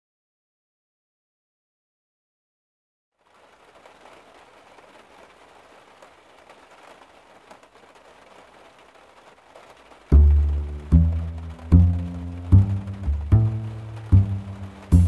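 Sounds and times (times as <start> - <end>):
faint hiss with crackles: 3.2 - 15.0.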